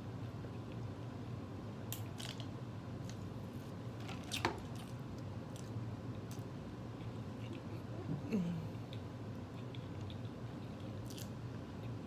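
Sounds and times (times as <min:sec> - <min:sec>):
low steady hum: 0:00.0 - 0:12.0
chewing food: 0:08.9 - 0:12.0.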